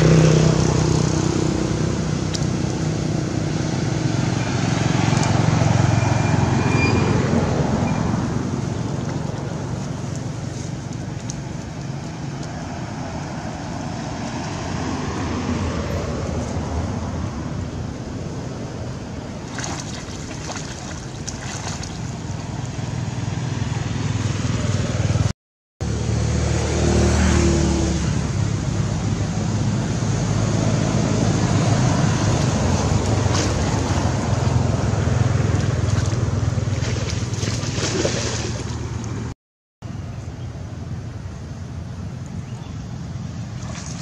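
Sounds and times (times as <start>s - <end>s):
water sloshing and splashing: 19.4s - 23.3s, 31.8s - 39.3s, 43.4s - 44.0s.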